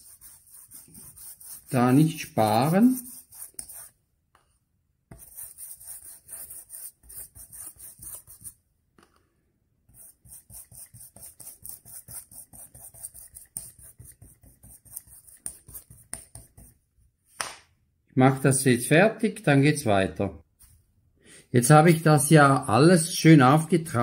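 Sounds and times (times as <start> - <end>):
paintbrush scrubbing on foam: 0.0 - 4.0, 5.1 - 8.6, 9.9 - 16.8.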